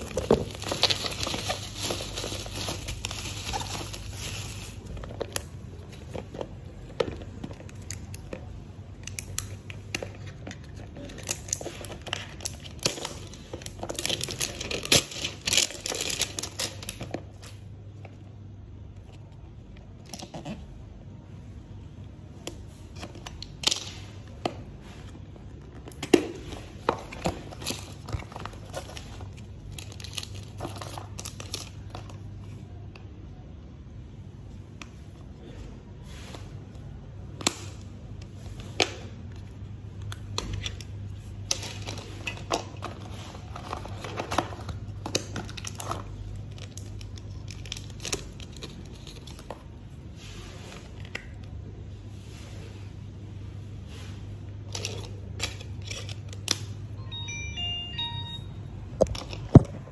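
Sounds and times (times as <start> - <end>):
plastic packaging crinkling and tearing: 0.0 - 18.1, 22.5 - 33.4, 36.6 - 51.8.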